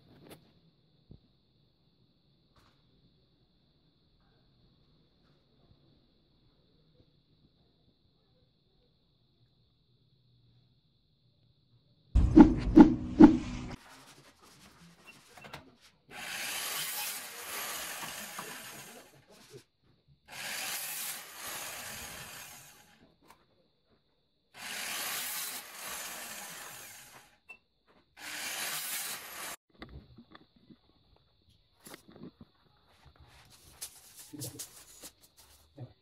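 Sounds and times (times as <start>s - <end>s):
electric saw cutting plastic: 16.1s - 19.5s, 20.3s - 23.0s, 24.6s - 27.3s, 28.2s - 29.6s.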